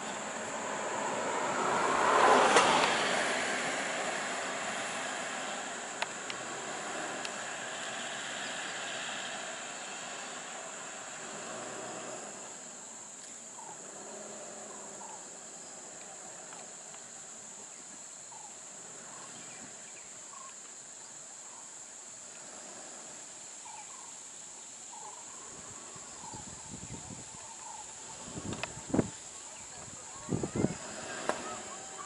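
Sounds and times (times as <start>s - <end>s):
high-pitched insect drone: 0.0s - 32.0s
faint bird chirps: 11.2s - 21.9s, 23.6s - 32.0s.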